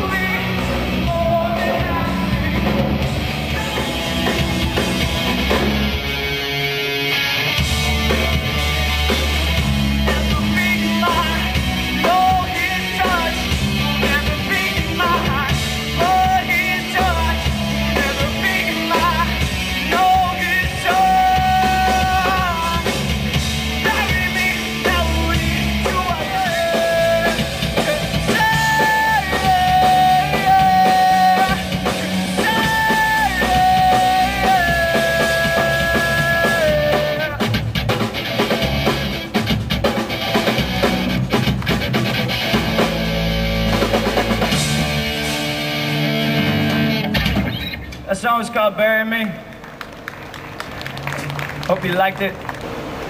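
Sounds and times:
man singing long notes: 0:00.0 - 0:04.7, 0:10.3 - 0:22.9, 0:28.2 - 0:37.4
live rock band playing: 0:00.0 - 0:53.0.

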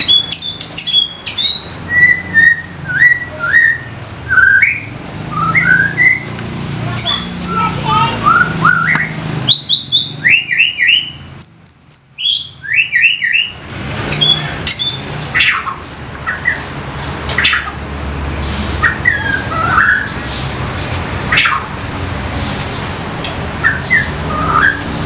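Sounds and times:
bird singing whistles and chirps: 0:00.0 - 0:06.3, 0:08.2 - 0:15.6, 0:18.8 - 0:20.2, 0:23.6 - 0:24.9.

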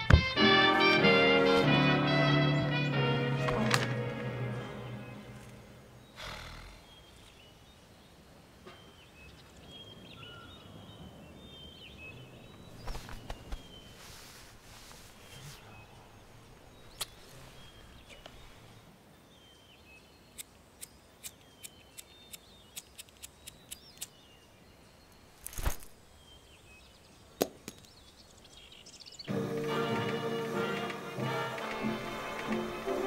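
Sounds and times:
music: 0:00.0 - 0:05.8, 0:29.3 - 0:33.0
birds chirping faintly: 0:01.0 - 0:33.0.

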